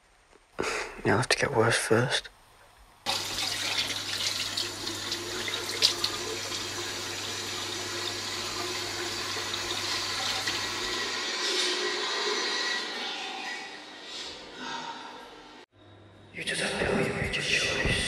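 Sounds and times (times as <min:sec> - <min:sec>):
tap water running into sink: 0:03.1 - 0:11.1.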